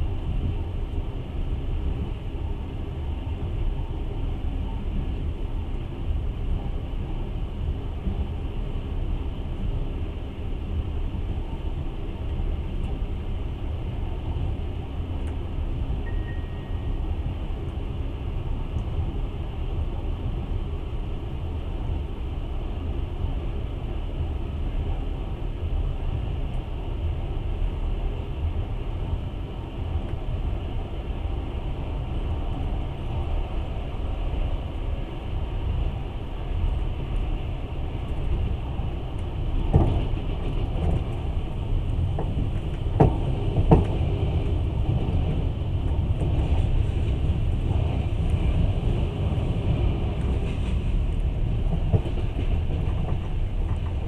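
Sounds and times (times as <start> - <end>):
train rumbling on track: 0.0 - 54.0
faint high tone: 16.0 - 16.8.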